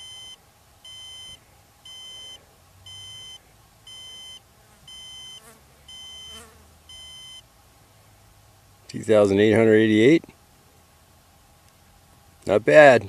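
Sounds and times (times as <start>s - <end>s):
high steady beeps: 0.0s - 7.5s.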